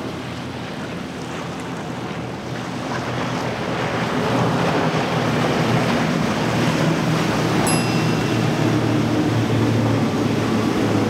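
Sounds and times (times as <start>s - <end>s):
outboard engines droning: 0.0s - 11.0s
surf: 7.6s - 11.0s.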